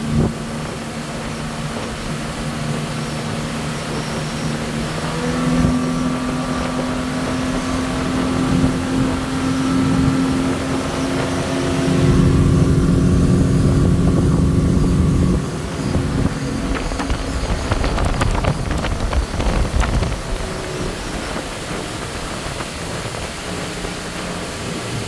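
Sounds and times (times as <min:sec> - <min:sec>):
outboard motor droning: 0:00.0 - 0:25.0
low rushing noise: 0:12.2 - 0:25.0.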